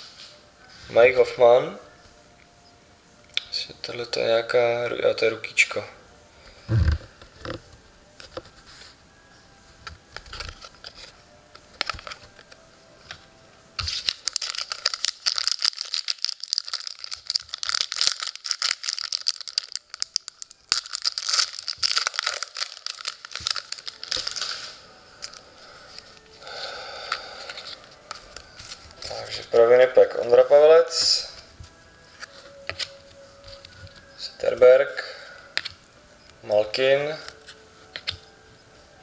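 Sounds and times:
foil wrapper crinkling: 13.8s - 29.6s.

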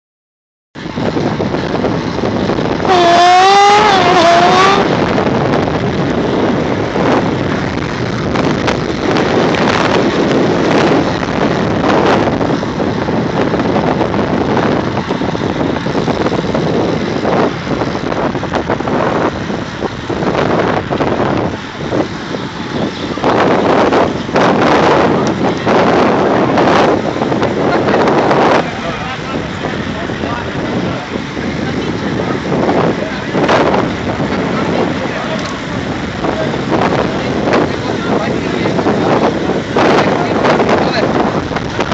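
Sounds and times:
wind rushing over microphone: 0.8s - 41.9s
loud wavering call: 2.9s - 4.9s.

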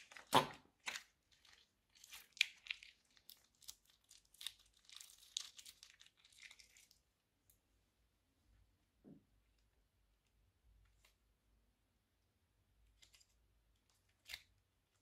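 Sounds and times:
slime squelching: 0.0s - 7.1s.

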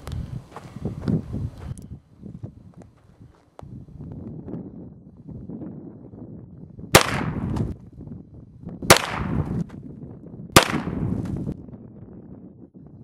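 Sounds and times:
pistol shots with echo: 7.0s - 7.6s, 8.9s - 9.6s, 10.6s - 11.2s.

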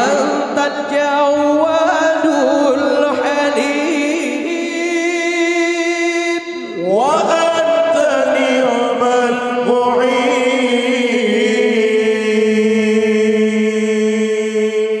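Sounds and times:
men singing a cappella: 0.0s - 15.0s.

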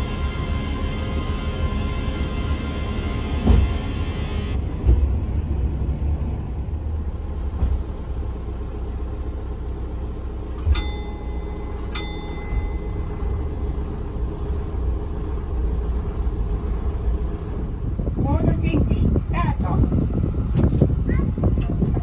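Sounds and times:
train engine rumble: 0.0s - 22.0s
short ringing dings: 10.6s - 13.4s.

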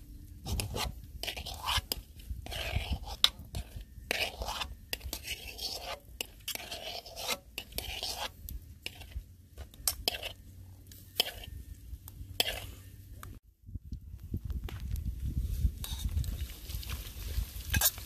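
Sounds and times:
metal spoons scraping a wok: 0.4s - 11.7s, 12.3s - 12.9s, 15.8s - 16.1s, 17.7s - 18.0s.

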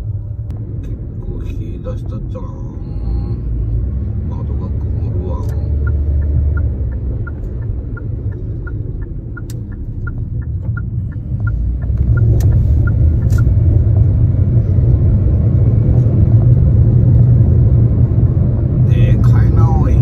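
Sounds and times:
car cabin road rumble: 0.0s - 20.0s
turn signal ticking: 0.0s - 20.0s.

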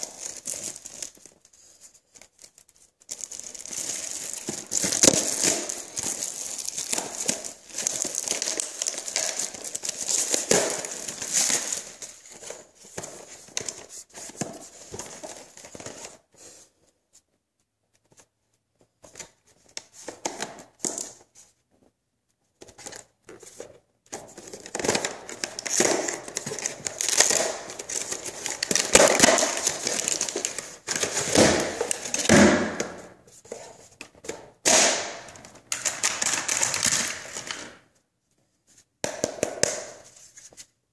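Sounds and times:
plastic packaging crinkling: 0.0s - 13.9s, 24.2s - 32.4s, 35.0s - 37.8s.

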